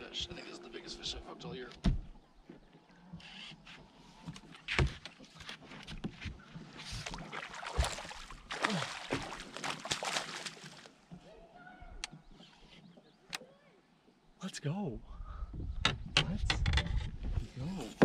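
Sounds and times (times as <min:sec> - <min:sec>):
fish thrashing and splashing: 0:06.8 - 0:11.0.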